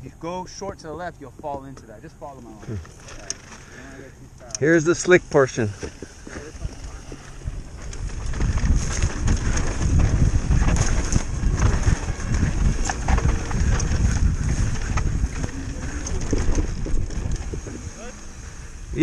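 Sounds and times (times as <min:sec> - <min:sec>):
tyres on loose dry dirt: 0:00.6 - 0:19.0
bike rattling: 0:01.4 - 0:19.0
wind buffeting microphone: 0:05.2 - 0:19.0.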